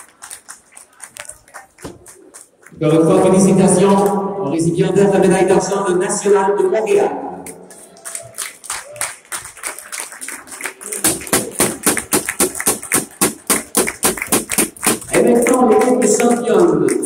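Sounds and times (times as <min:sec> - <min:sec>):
hands clapping close by: 0:00.0 - 0:02.8, 0:07.4 - 0:17.0
applause: 0:00.0 - 0:03.2, 0:07.4 - 0:17.0.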